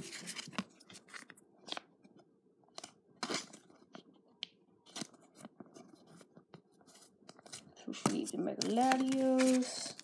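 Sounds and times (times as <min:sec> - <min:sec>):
plastic sleeve crinkling: 0:06.9 - 0:10.0.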